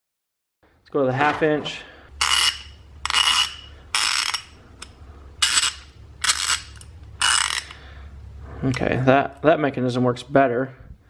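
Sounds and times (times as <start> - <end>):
ratchet clicking: 2.2 - 7.8.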